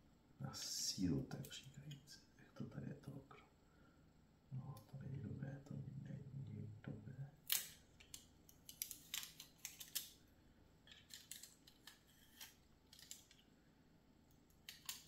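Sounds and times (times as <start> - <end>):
plastic parts clicking: 7.4 - 10.2, 10.8 - 13.4, 14.3 - 15.0.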